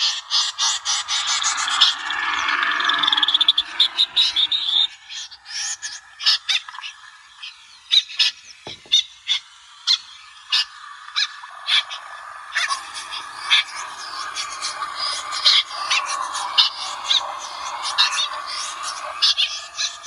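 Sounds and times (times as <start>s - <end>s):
recorded snipe calls: 8.0s - 20.0s.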